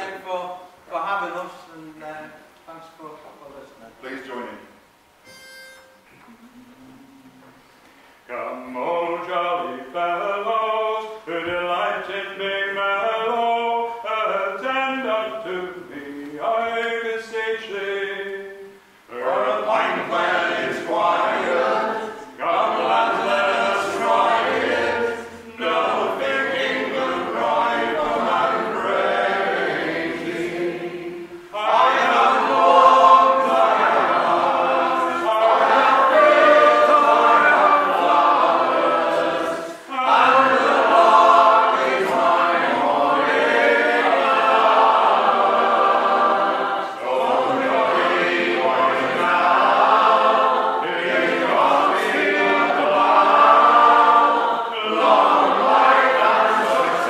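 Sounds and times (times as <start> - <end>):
singers breathing: 7.5 - 8.3
men singing in harmony: 8.3 - 57.0.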